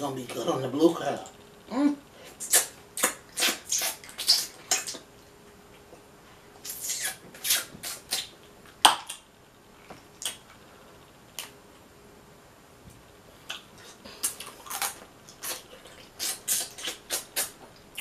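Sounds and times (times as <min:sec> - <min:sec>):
wet mouth smacks and sucking: 0:02.4 - 0:05.1, 0:06.6 - 0:09.2, 0:13.5 - 0:18.0.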